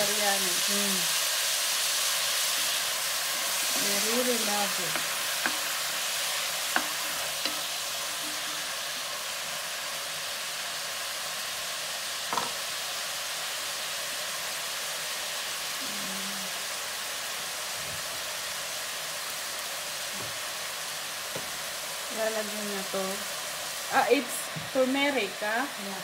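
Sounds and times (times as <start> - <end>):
onions sizzling in a pan: 0.0 - 26.0
wooden spatula knocking on pan: 4.9 - 5.7, 12.3 - 12.6.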